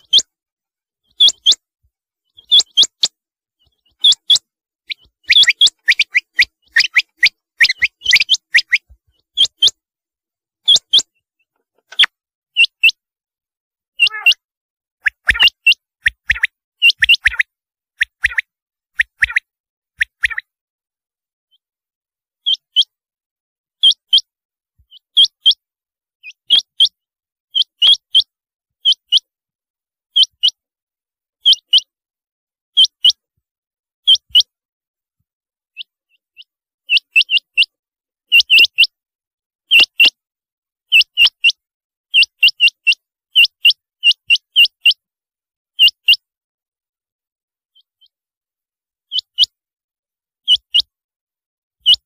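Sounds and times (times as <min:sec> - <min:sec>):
quail calling: 0:00.0 - 0:00.3, 0:02.4 - 0:09.8, 0:10.6 - 0:13.0, 0:14.0 - 0:14.4, 0:15.0 - 0:18.4, 0:35.8 - 0:38.9.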